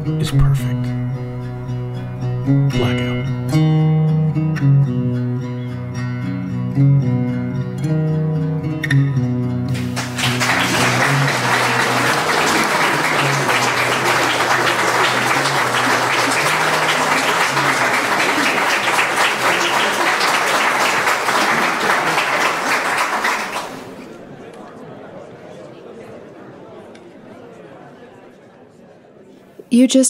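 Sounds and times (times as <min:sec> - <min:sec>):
acoustic guitar music: 0:00.0 - 0:21.8
audience applause: 0:09.7 - 0:24.3.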